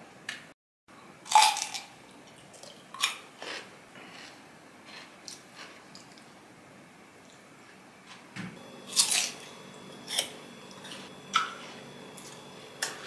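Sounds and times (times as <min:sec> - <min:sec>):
crunching cucumber bites: 0:03.0 - 0:06.2.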